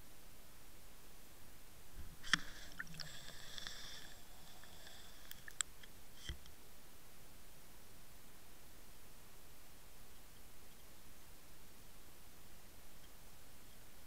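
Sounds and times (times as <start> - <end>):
faint high whine: 0.0 - 14.0.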